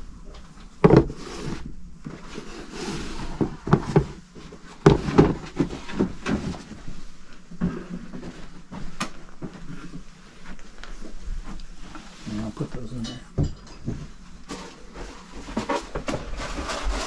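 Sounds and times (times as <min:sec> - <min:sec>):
household items knocking and thumping: 0:00.8 - 0:01.2, 0:03.3 - 0:06.8, 0:13.3 - 0:16.9.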